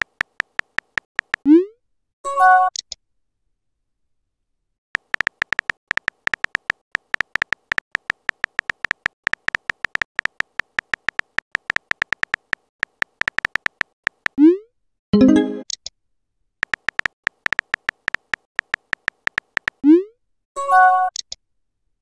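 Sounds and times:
phone keyboard typing clicks: 0.0 - 1.5, 5.0 - 14.4, 16.6 - 19.8.

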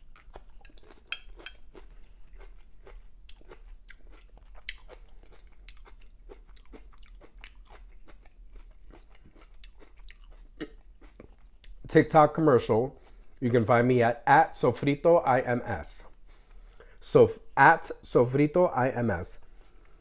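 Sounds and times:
person chewing food: 0.0 - 11.9, 12.9 - 13.4, 19.4 - 20.0.

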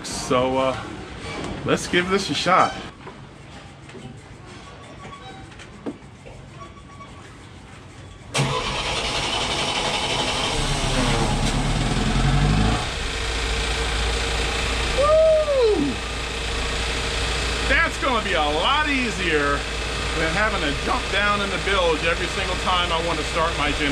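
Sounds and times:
generator engine starting and running: 8.3 - 23.9.

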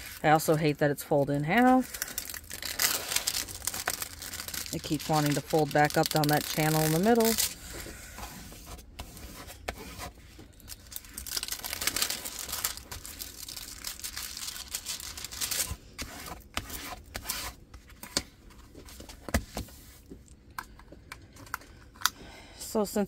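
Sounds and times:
plastic film rustling and crinkling: 0.0 - 17.3.

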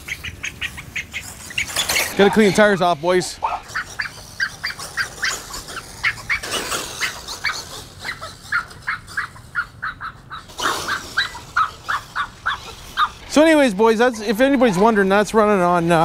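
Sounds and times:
rc truck driving past: 0.0 - 16.0
small dog barking: 3.4 - 5.3, 7.0 - 13.2.

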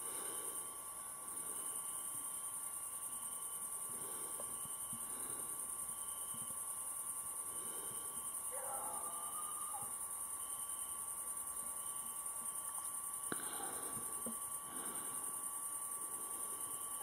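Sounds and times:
crickets chirring: 0.0 - 17.0
faint call: 8.5 - 10.0.

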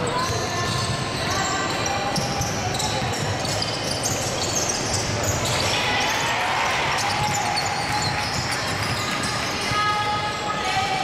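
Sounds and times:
ball bouncing on wooden court: 0.0 - 5.7, 6.9 - 9.8
sneakers squeaking: 0.0 - 10.8.

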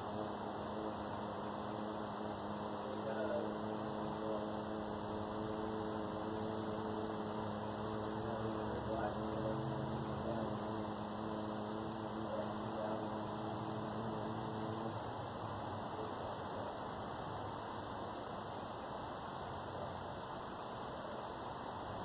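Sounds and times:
low droning hum: 0.0 - 15.1
constant hiss: 0.0 - 22.0.

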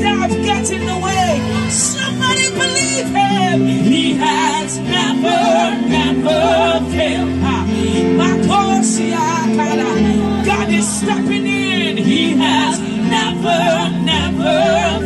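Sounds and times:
synthesizer chords: 0.0 - 15.0
women singing: 1.0 - 15.0.

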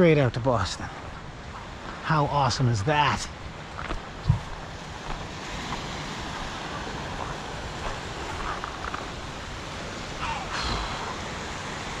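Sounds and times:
wind buffeting microphone: 3.3 - 12.0
small waves on pebble shore: 4.5 - 12.0.

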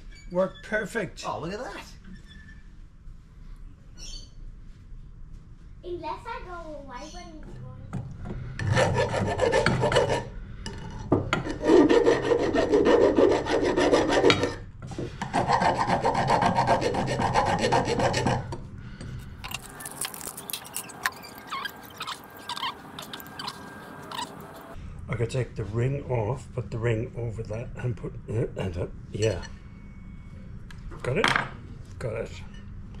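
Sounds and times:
file scraping steel bar: 8.6 - 10.3, 10.9 - 18.6
small metal parts clicking: 19.4 - 22.0.

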